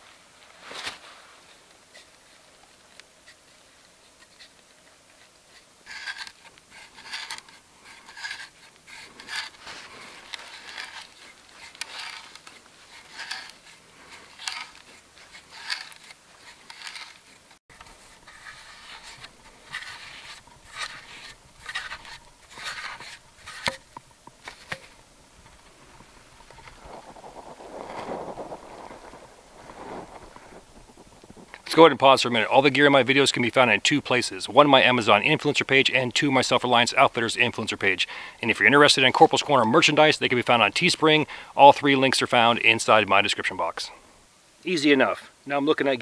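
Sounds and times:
hand auger boring into wood: 4.1s - 25.6s.

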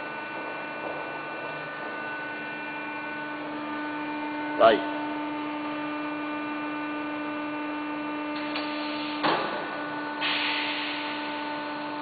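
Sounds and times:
bending machine humming: 0.0s - 12.0s
machine clunk: 8.4s - 10.6s
hiss: 10.2s - 11.2s.

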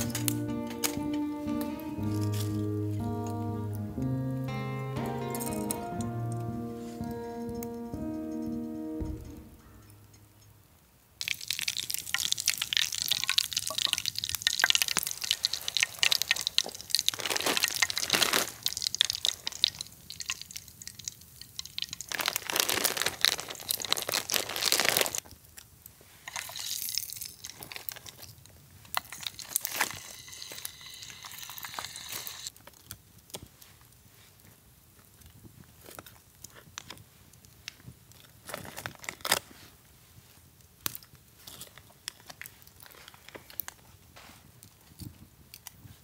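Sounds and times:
liquid pouring and dripping: 11.2s - 25.2s, 26.2s - 32.5s.

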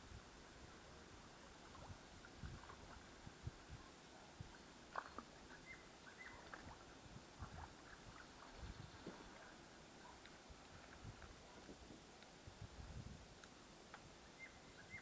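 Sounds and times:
faint ticks: 10.1s - 12.4s, 13.3s - 14.1s.

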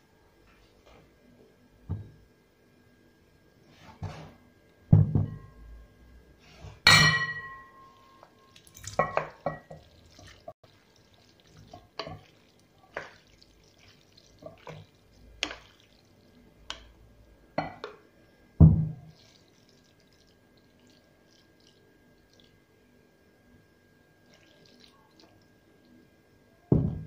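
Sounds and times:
dishes clattering: 6.9s - 7.8s
dishes and utensils clinking: 6.9s - 9.9s
heavy knock: 26.7s - 27.0s.

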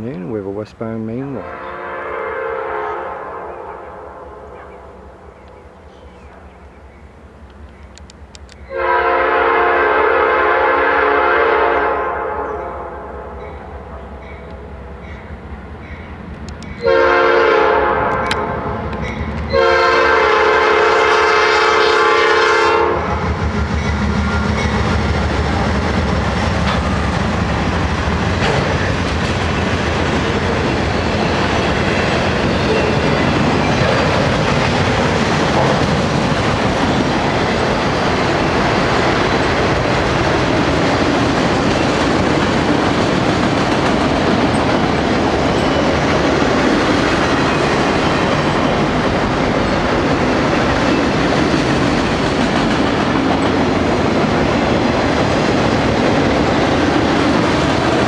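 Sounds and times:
train rumbling past: 0.0s - 58.0s
locomotive air horn blasts: 1.4s - 4.5s, 8.7s - 13.4s, 16.8s - 18.8s, 19.5s - 23.2s
wheels clacking over rail joints: 23.3s - 58.0s.

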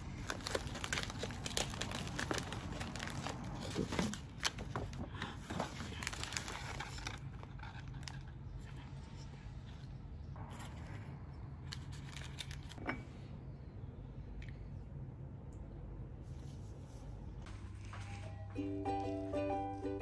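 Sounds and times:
plastic bag crackling: 0.0s - 8.3s
paper wrapping crinkling: 0.0s - 8.8s, 11.7s - 12.8s.

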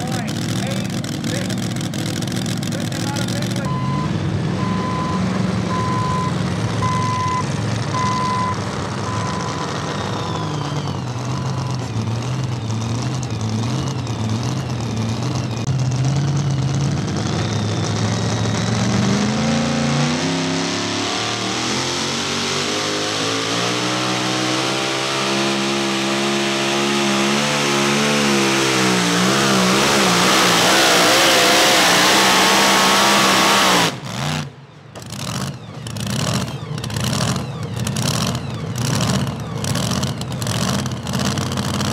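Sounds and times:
truck engine revving: 0.0s - 41.9s
backup alarm beeping: 3.7s - 9.6s.

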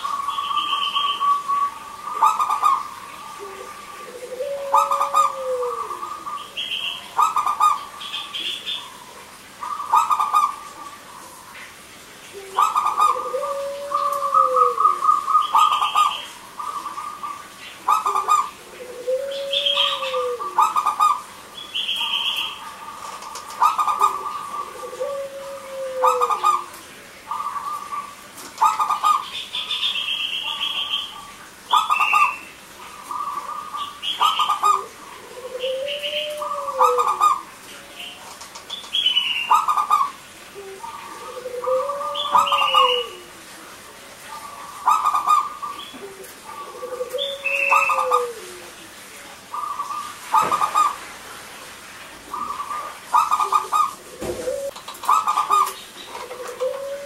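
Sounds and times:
dove cooing: 0.0s - 11.5s, 12.3s - 43.5s, 44.2s - 48.8s, 49.5s - 51.1s, 52.3s - 57.0s.

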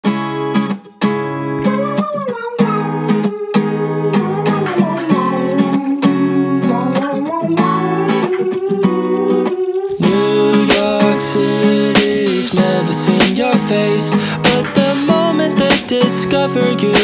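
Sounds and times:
strummed acoustic guitar: 0.0s - 17.0s
wavering melody line: 1.6s - 16.9s.

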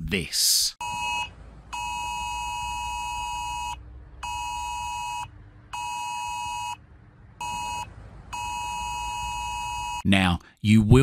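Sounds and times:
two-tone phone alarm blaring: 0.8s - 6.8s, 7.4s - 10.0s.

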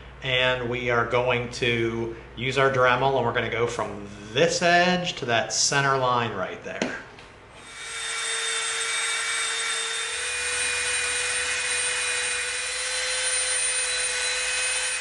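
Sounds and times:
rotary tool high whine: 7.6s - 15.0s.

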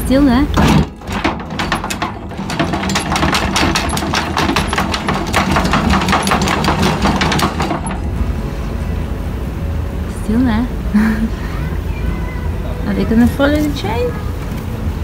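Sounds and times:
low steady hum: 0.0s - 15.0s
anchor chain links clacking: 0.7s - 8.1s.

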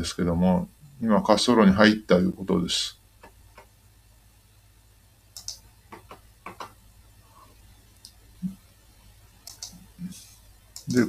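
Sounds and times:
computer mouse clicks: 5.4s - 6.8s, 9.4s - 9.8s.

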